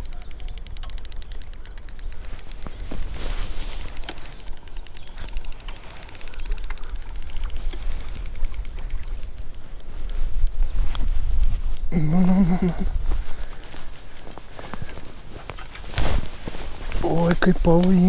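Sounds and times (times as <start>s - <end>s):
fishing reel clicking rapidly: 0.0s - 12.6s.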